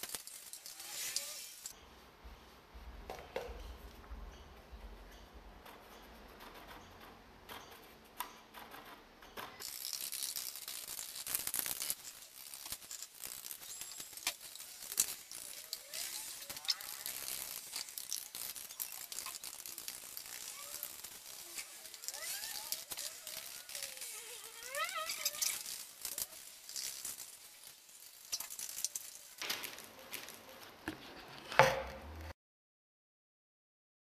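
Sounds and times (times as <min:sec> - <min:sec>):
steady hiss: 0:00.0 - 0:03.0, 0:09.6 - 0:30.9
paintbrush dabbing and scraping: 0:04.8 - 0:29.2.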